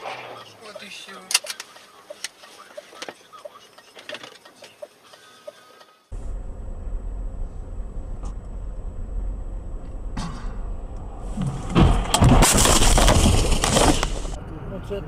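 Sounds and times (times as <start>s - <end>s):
car engine and road rumble: 0.0s - 15.0s
loud thumps: 9.6s - 14.4s.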